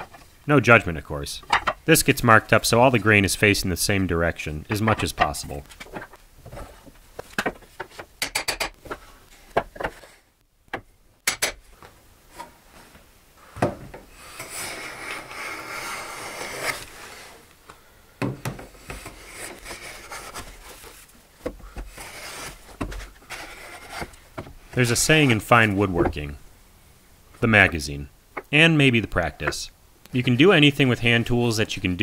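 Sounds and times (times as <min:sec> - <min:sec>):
hand plane shaving wood: 0:14.2 - 0:17.4, 0:18.8 - 0:20.9, 0:21.9 - 0:24.1.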